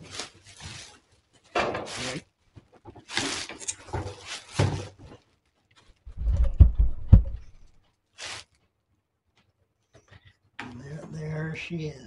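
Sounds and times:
bin thumping on floor: 0:03.9 - 0:05.0
short rustle: 0:07.5 - 0:08.7.

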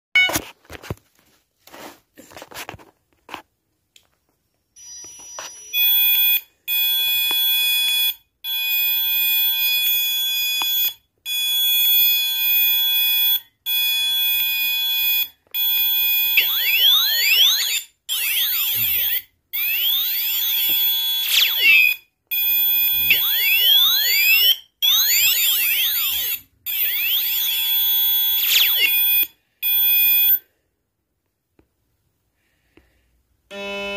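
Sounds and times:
shrill electronic tones: 0:14.2 - 0:30.4.

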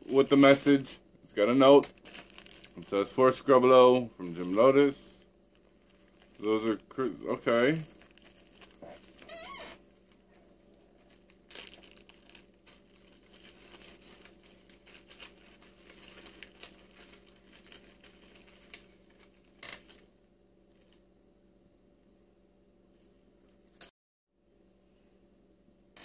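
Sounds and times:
low steady hum: 0:00.0 - 0:26.0
plastic bag crinkling: 0:01.7 - 0:21.0.

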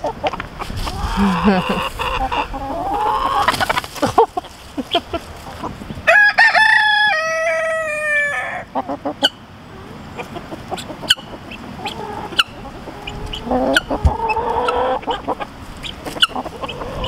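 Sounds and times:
chickens clucking softly: 0:00.0 - 0:17.0
rooster crowing: 0:06.1 - 0:08.7.

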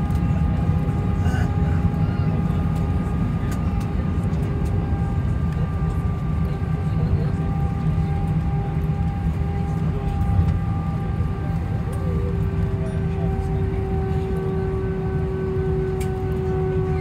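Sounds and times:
aircraft cabin rumble: 0:00.0 - 0:17.0.

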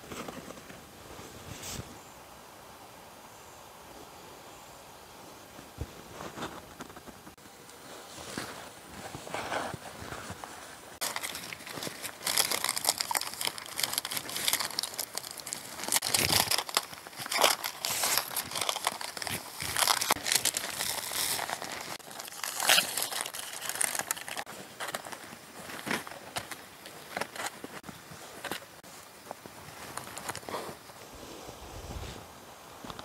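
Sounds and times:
aluminium foil crinkling: 0:11.0 - 0:30.6.

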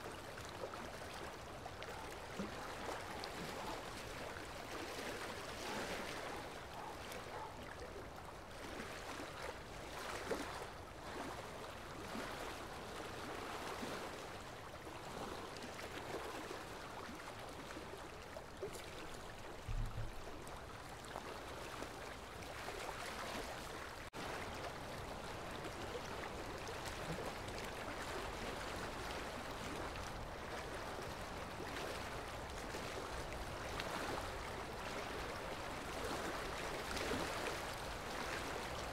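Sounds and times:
flowing water: 0:00.0 - 0:38.9
low thump: 0:19.7 - 0:20.2.

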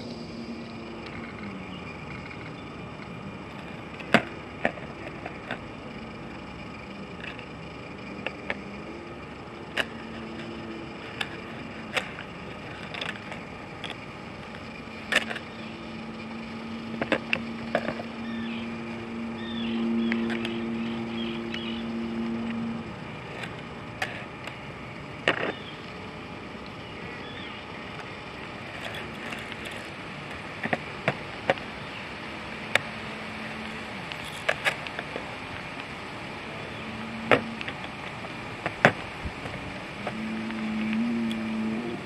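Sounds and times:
low hum: 0:00.0 - 0:42.0
small plastic and metal parts clicking: 0:09.7 - 0:15.6, 0:28.8 - 0:31.6, 0:34.1 - 0:35.2.

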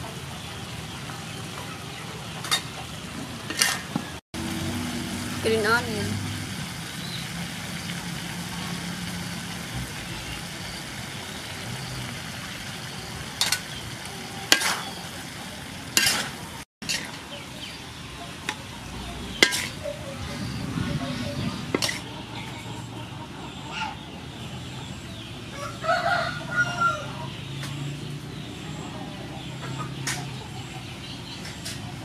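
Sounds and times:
food sizzling in pan: 0:00.2 - 0:18.6
spatula scraping pan: 0:03.5 - 0:03.9, 0:14.5 - 0:15.0, 0:15.9 - 0:17.4, 0:19.0 - 0:20.6, 0:21.4 - 0:22.2.

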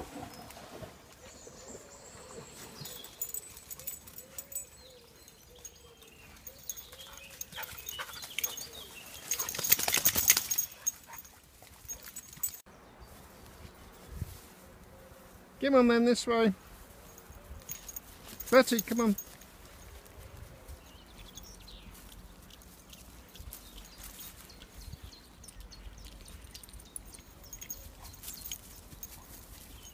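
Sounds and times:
rustling leaves: 0:00.0 - 0:29.9
dog footsteps: 0:05.6 - 0:12.6, 0:16.8 - 0:20.4.

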